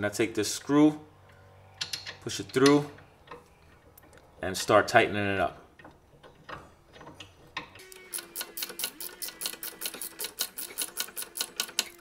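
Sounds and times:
hand ratchet clicking: 5.8s - 12.0s.

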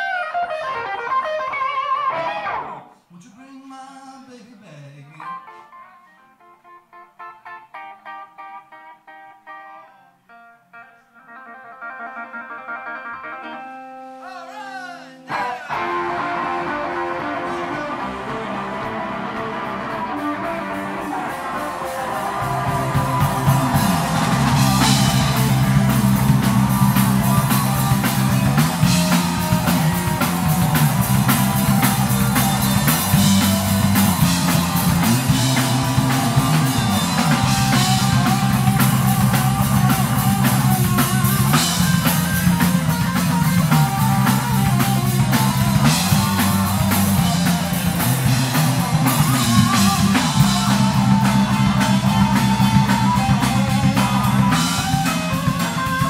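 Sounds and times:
electric guitar: 0.0s - 3.0s, 5.2s - 56.0s
drum kit: 15.6s - 56.0s
walking bass line: 15.8s - 56.0s.

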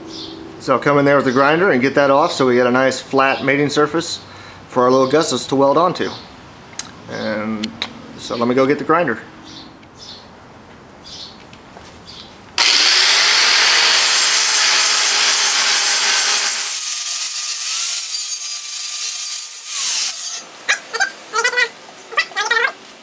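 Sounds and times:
angle grinder grinding steel: 12.6s - 21.0s.

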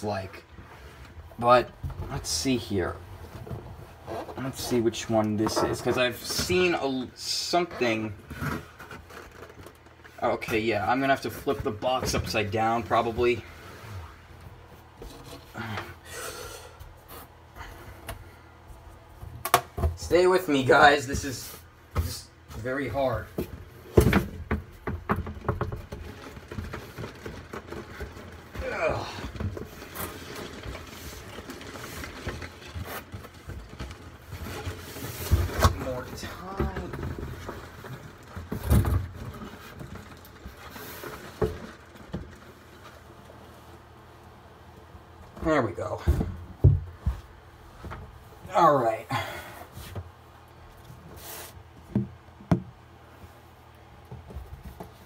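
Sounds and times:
knocks and rustles: 0.0s - 16.0s, 16.8s - 55.0s
cardboard boxes scraping: 0.1s - 16.3s, 25.4s - 43.5s, 51.0s - 51.8s
cardboard sliding scrape: 51.1s - 51.6s.

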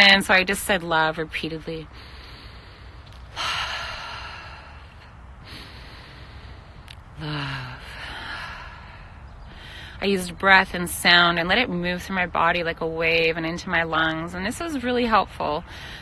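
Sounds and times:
woman breathing deeply: 1.9s - 10.0s.

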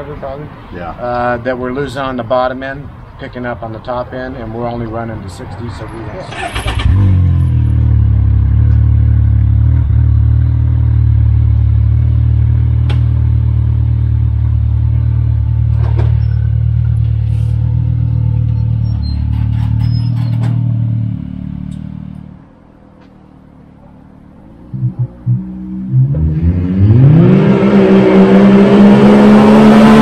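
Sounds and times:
engine idling with deep drone: 6.7s - 22.5s, 23.4s - 26.2s.

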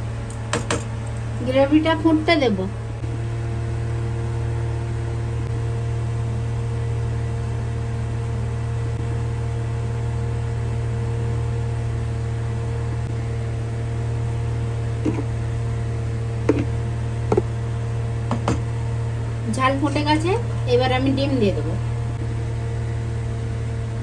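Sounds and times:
electrical hum with hiss: 0.0s - 24.0s
spatula knocking and scraping pan: 15.0s - 15.4s, 16.4s - 17.6s, 18.3s - 18.7s.

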